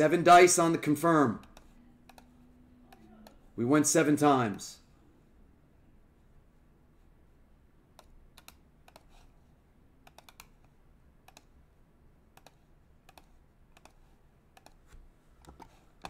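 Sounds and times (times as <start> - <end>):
faint keyboard clicks: 1.4 - 2.3, 8.0 - 9.3, 10.0 - 11.5, 12.4 - 15.8.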